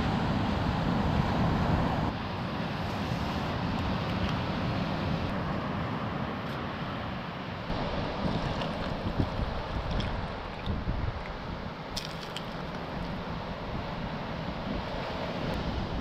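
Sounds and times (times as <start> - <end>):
wind buffeting microphone: 7.7 - 16.0.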